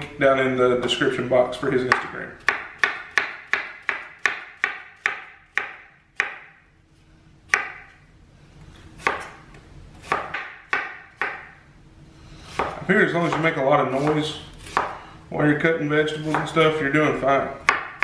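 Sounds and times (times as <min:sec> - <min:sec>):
knife chopping on wooden board: 0:01.9 - 0:06.6, 0:07.5 - 0:08.0, 0:09.0 - 0:11.6, 0:12.5 - 0:15.0, 0:16.2 - 0:16.7, 0:17.6 - 0:18.0.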